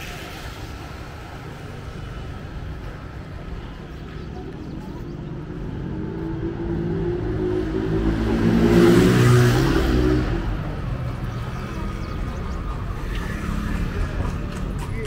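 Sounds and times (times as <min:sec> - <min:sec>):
vehicle engine passing by: 0:04.4 - 0:15.0.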